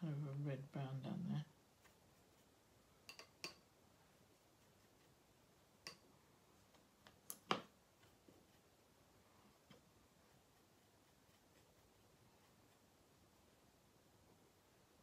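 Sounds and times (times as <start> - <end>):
brush tapping glass jar: 3.0 - 3.7.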